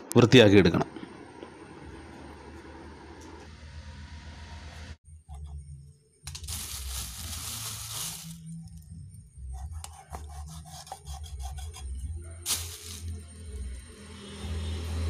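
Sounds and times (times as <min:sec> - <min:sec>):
knife scraping coconut husk: 0:09.6 - 0:12.0.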